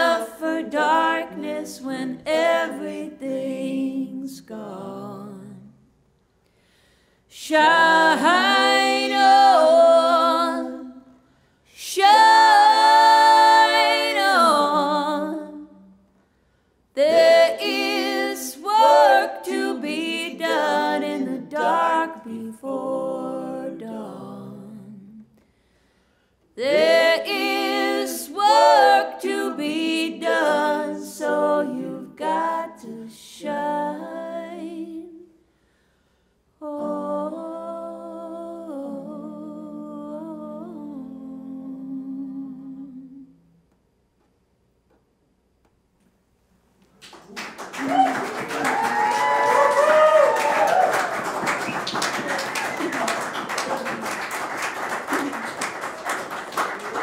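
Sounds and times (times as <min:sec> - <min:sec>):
woman singing: 0:00.0 - 0:05.7.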